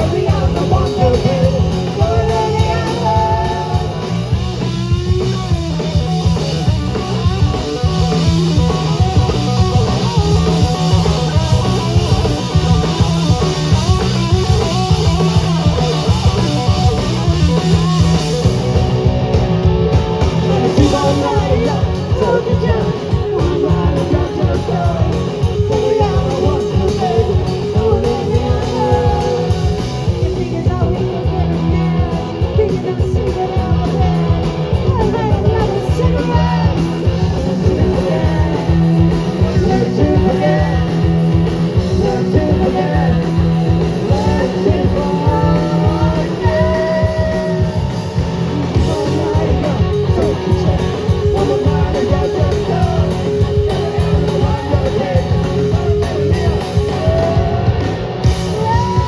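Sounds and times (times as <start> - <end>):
person singing: 0.0 - 4.4, 20.4 - 59.0
electric bass: 0.0 - 59.0
electric guitar: 0.0 - 59.0
steady drum beat: 0.0 - 59.0.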